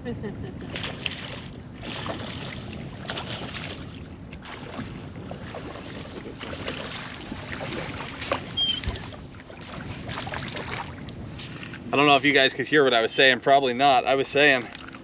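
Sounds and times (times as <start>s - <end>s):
water lapping at a boat: 0.0s - 15.0s
wind buffeting microphone: 0.0s - 15.0s
short high squeak: 8.5s - 8.9s.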